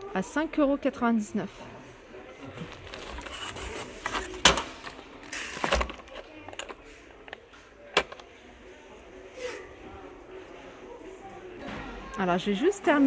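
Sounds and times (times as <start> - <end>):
cardboard packaging rustling: 2.7 - 6.7.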